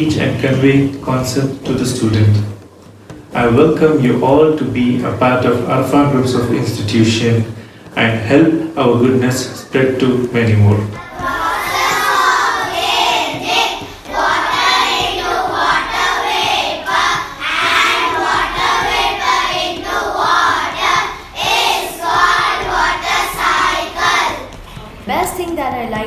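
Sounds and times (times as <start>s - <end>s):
children singing in unison: 11.0s - 24.6s.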